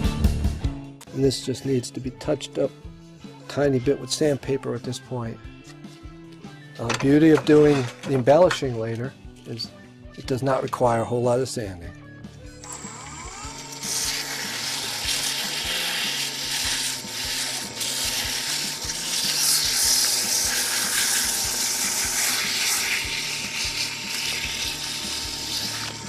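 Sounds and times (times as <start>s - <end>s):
wood lathe motor whine: 12.6s - 26.0s
sandpaper sanding hiss: 13.8s - 26.0s.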